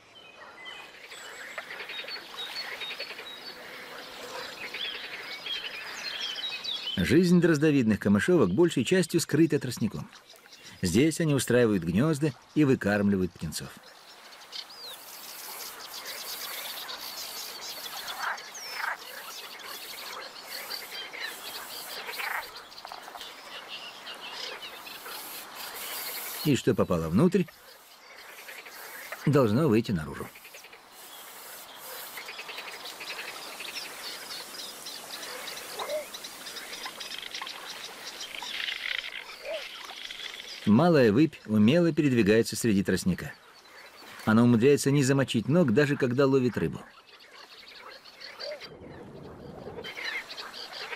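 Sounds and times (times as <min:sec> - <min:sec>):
faint insect hiss: 0:00.0 - 0:07.0, 0:09.8 - 0:42.0
reed warblers chirping: 0:00.0 - 0:50.9
nestlings chittering: 0:14.4 - 0:23.7, 0:24.4 - 0:40.8.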